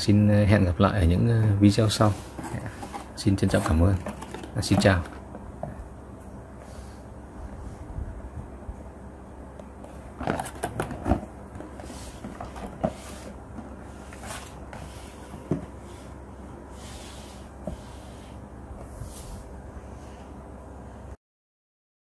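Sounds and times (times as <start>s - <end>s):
cardboard rubbing and scraping: 2.0s - 5.1s, 10.2s - 16.1s.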